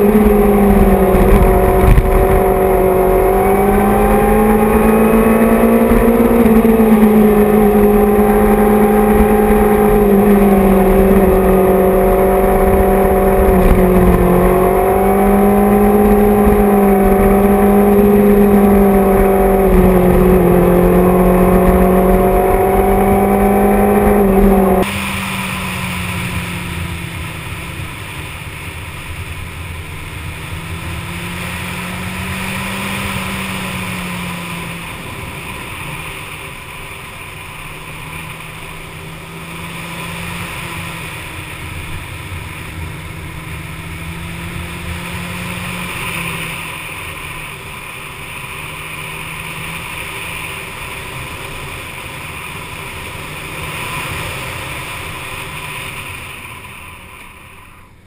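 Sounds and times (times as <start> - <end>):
wind noise: 0.0 - 35.3
motorcycle engine revving: 0.0 - 56.7.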